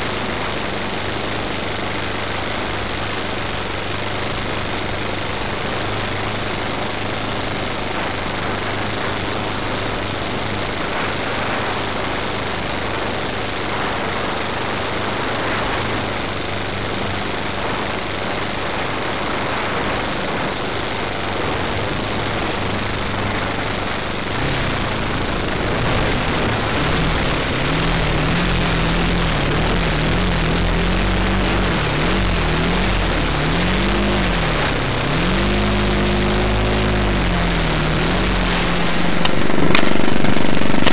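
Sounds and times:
model plane engine running: 0.0 - 40.9.

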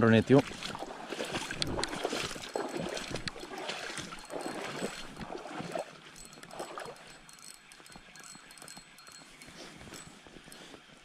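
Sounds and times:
lake water splashing at shore: 0.2 - 7.6.

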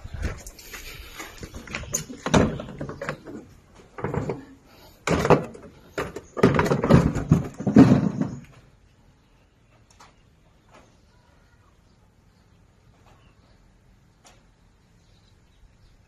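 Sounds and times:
knocks and thuds: 2.1 - 3.4, 4.0 - 8.6.

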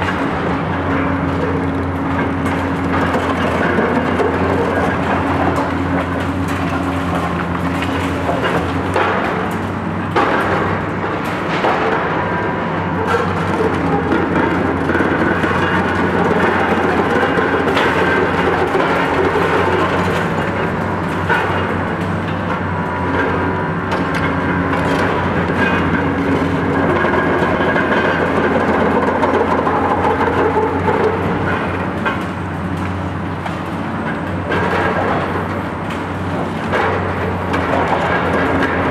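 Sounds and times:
diesel excavator engines: 0.0 - 38.9
concrete and steel breaking: 2.1 - 33.1.

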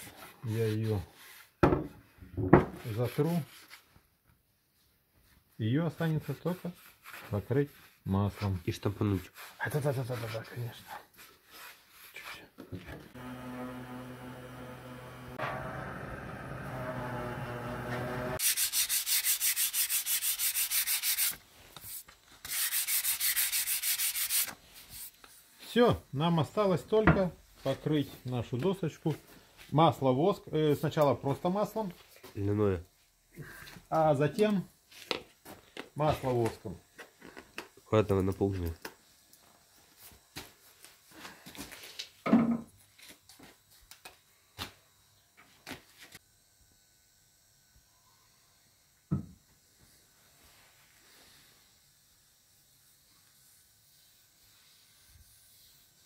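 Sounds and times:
sanding sponge scraping wood: 0.0 - 1.6, 2.8 - 3.8, 5.9 - 12.4, 16.4 - 25.8.

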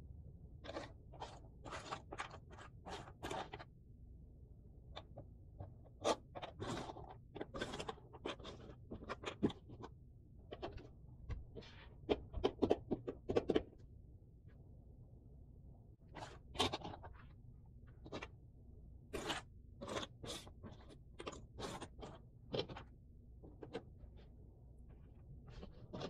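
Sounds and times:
puzzle pieces clicking and scraping: 0.6 - 3.7, 5.9 - 9.8, 19.1 - 23.9.

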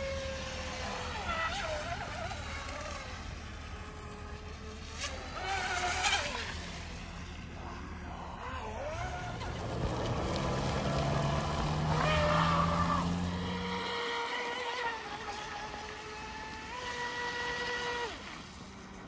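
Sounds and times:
electric motor whining: 0.0 - 19.0
water splashing: 0.0 - 19.0.

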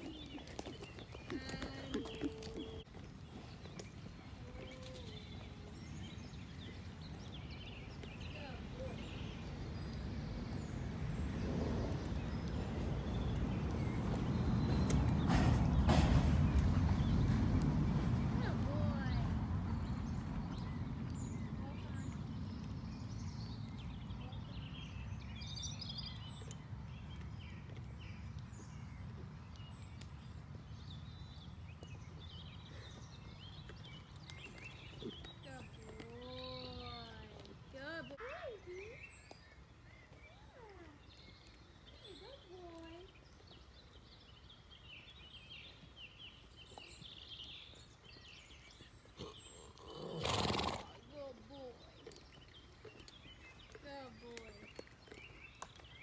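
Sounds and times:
small birds chirping: 0.0 - 56.0
wind rumble on microphone: 4.6 - 32.6.

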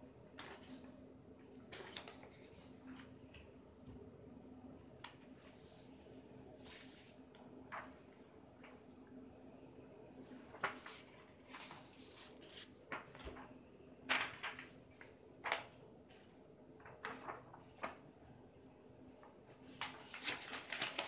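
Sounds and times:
faint steady hum: 0.0 - 21.0
paper rustling and crackling: 0.3 - 3.4, 6.6 - 9.1, 10.2 - 18.4, 19.2 - 21.0.

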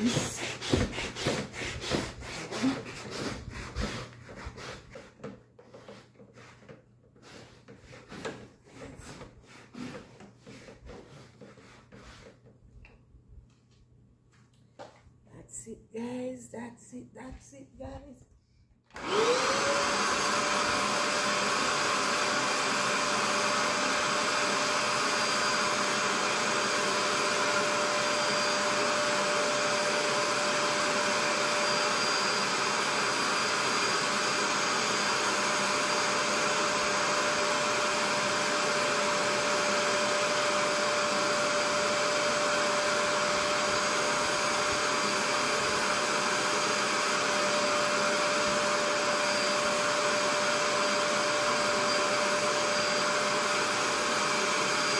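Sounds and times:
steam cleaner whine and suction: 19.0 - 54.9.

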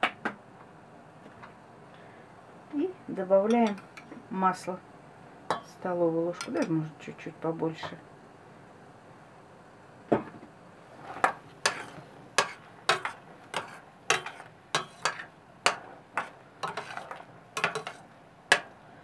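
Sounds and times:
metal spoon clinking on pot: 11.7 - 18.7.

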